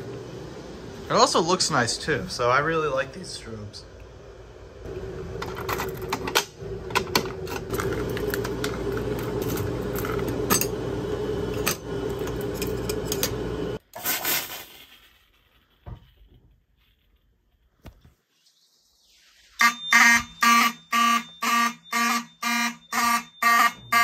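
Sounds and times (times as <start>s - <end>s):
steady low tone and hum: 0.0s - 13.8s.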